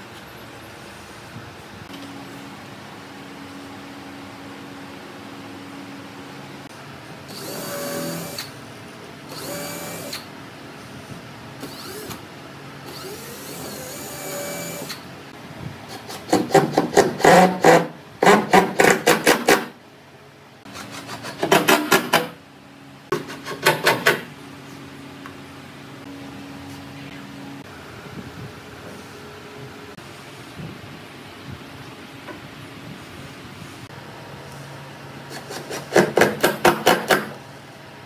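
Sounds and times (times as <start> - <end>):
cordless drill whirring: 7.3 - 8.5, 9.3 - 10.3, 11.6 - 12.2, 12.9 - 15.0.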